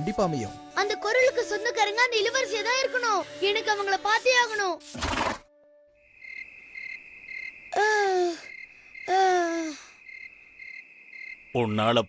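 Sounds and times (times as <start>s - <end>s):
crickets chirping: 5.8s - 12.0s.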